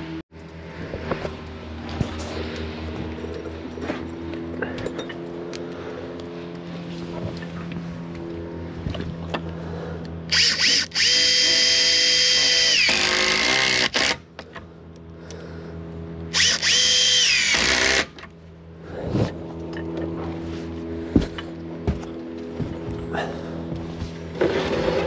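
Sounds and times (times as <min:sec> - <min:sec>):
cordless drill whining: 0:10.3 - 0:14.2, 0:16.3 - 0:18.2.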